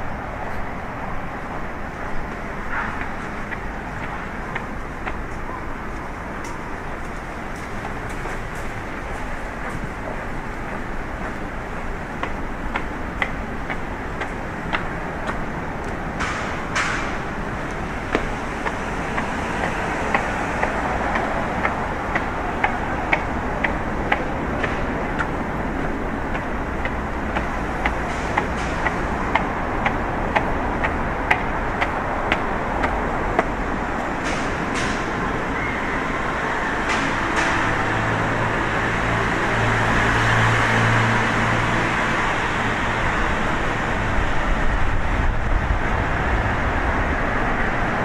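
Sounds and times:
traffic: 0.0s - 48.0s
footsteps clicking: 2.0s - 35.2s.

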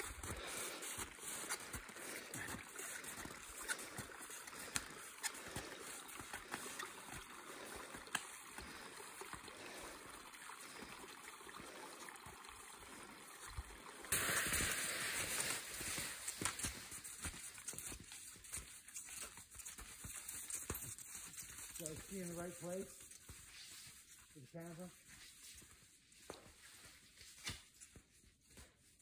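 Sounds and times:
skis sliding over snow: 0.0s - 12.0s, 13.4s - 27.6s.

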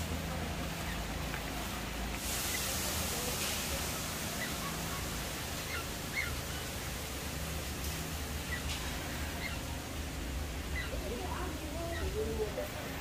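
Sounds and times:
steady background hiss: 0.0s - 13.0s
faint bird chirps: 3.8s - 6.9s, 7.8s - 10.0s, 10.6s - 13.0s.

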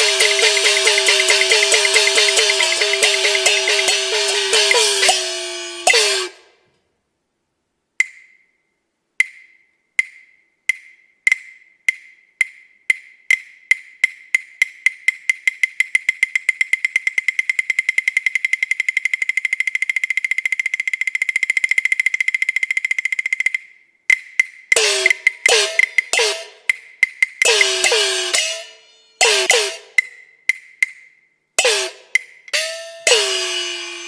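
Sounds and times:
woodblock strikes: 0.0s - 6.4s, 8.0s - 8.5s, 9.2s - 34.0s.

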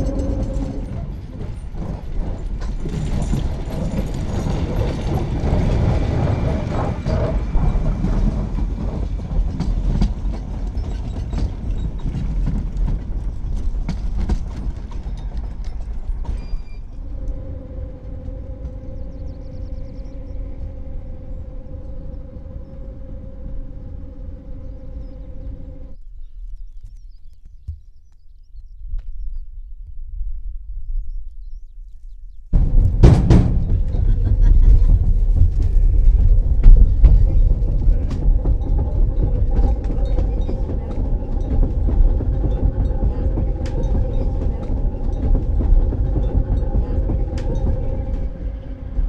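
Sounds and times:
train steady hum: 0.0s - 26.0s, 32.5s - 49.0s
train wheels rumbling clatter: 0.0s - 26.0s, 32.6s - 49.0s.

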